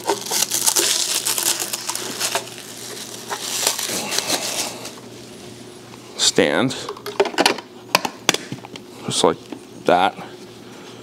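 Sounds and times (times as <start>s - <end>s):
plastic bag crinkling: 0.0s - 5.0s.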